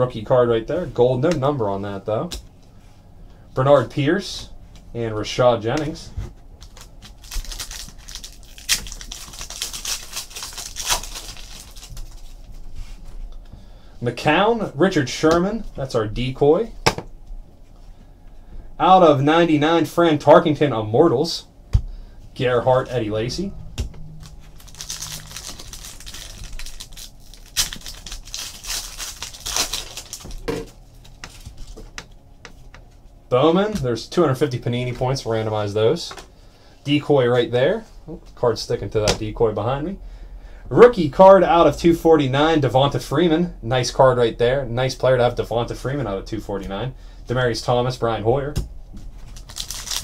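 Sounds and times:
wrapper crinkling and tearing: 6.6 - 12.5, 24.2 - 31.8, 49.2 - 50.0
trading cards clicking and rustling: 24.2 - 32.1.

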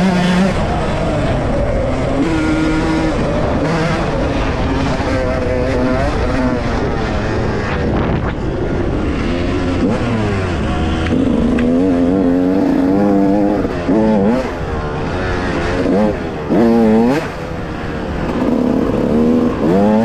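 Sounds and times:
dirt bike engine revving: 0.0 - 20.0.

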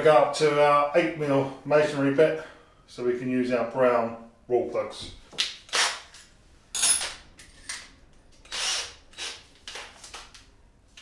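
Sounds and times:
cordless drill motor bursts: 8.4 - 9.5.

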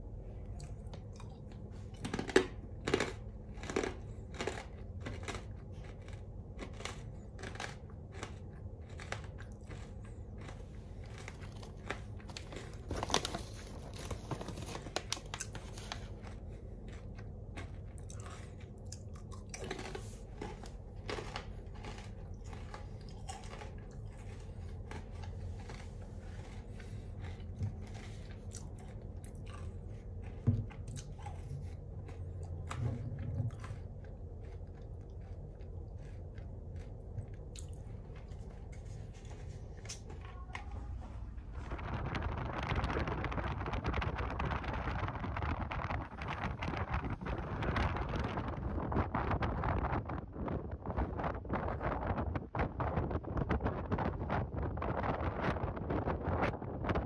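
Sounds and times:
low hum: 0.0 - 57.0
crunching chips: 0.4 - 40.3
chip bag rustling: 9.7 - 17.0.

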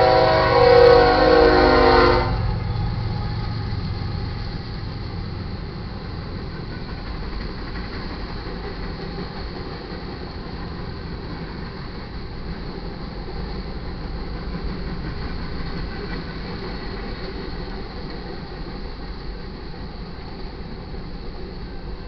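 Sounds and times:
locomotive horn: 0.0 - 4.4
freight train cars rumbling past: 0.0 - 22.0.

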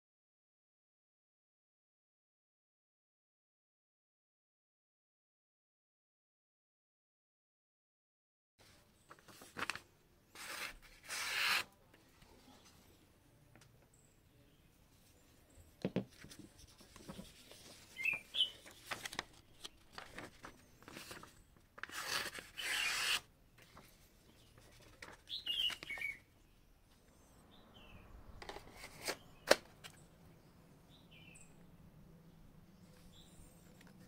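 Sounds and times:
knives and sheath handled: 10.4 - 11.7, 16.1 - 23.9
small birds chirping: 16.7 - 21.6, 23.7 - 34.0.

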